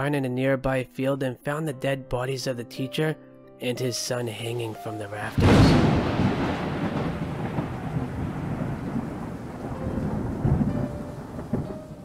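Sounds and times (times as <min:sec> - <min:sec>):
thunder rumbling: 0:05.2 - 0:12.0
steady rain: 0:05.4 - 0:12.0.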